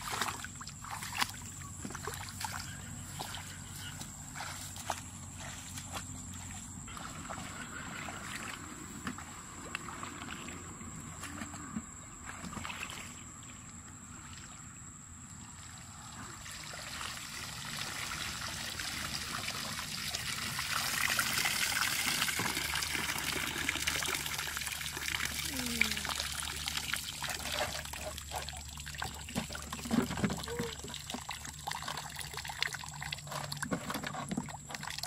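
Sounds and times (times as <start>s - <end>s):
water pouring and splashing: 0.0s - 3.4s, 15.6s - 35.0s.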